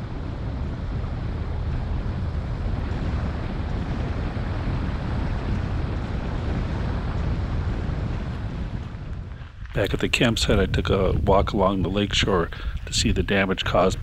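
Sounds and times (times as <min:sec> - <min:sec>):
wind on microphone: 0:00.0 - 0:14.0
car rumbling on gravel road: 0:05.1 - 0:12.3.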